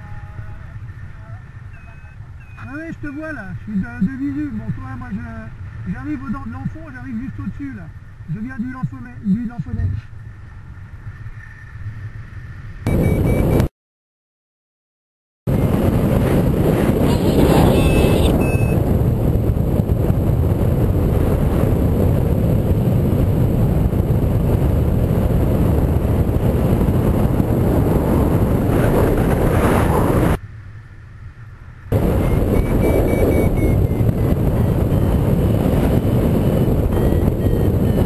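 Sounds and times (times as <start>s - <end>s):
wind buffeting microphone: 15.5s - 30.4s, 31.9s - 38.0s.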